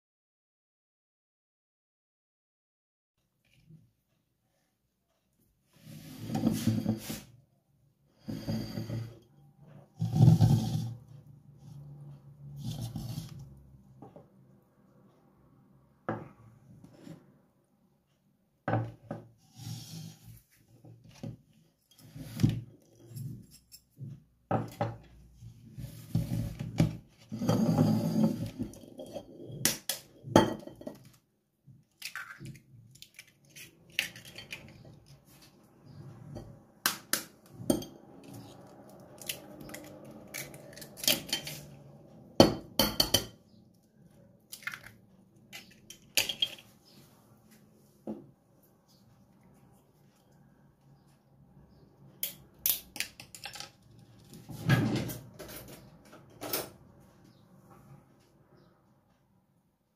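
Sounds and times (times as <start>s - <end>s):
dishes and bowl clinking: 30.2s - 31.1s, 42.4s - 43.5s.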